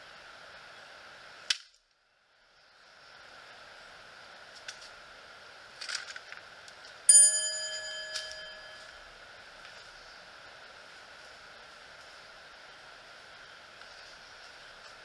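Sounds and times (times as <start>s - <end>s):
steady background hiss: 0.0s - 15.0s
light clicks and rustles: 5.8s - 7.0s
bell ringing: 7.1s - 9.0s.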